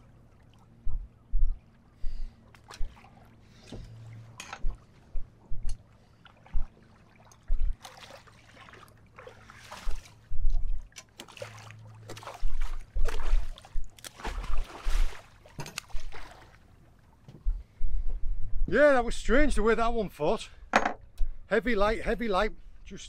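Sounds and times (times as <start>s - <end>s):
water splashing against boat: 0.0s - 17.7s.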